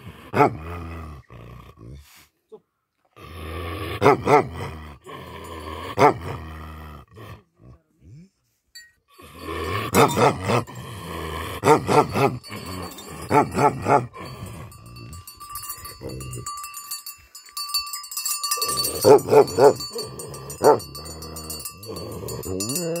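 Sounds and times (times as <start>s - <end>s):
dog barking deeply: 0.2s - 0.9s, 4.0s - 4.7s, 5.9s - 6.4s, 9.9s - 10.7s, 11.6s - 12.5s, 13.2s - 14.2s, 18.7s - 23.0s.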